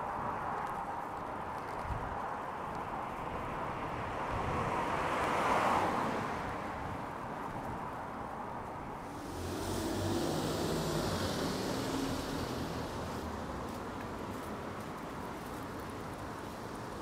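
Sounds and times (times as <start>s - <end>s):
wet street noise: 0.0s - 17.0s
tyres hissing on wet road: 8.9s - 17.0s
vehicle engine approaching: 9.0s - 15.5s.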